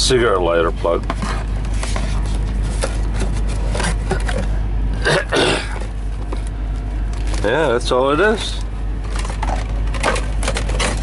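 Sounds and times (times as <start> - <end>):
low hum: 0.0 - 11.0
hand rummaging in cardboard box: 0.9 - 4.6, 9.0 - 11.0.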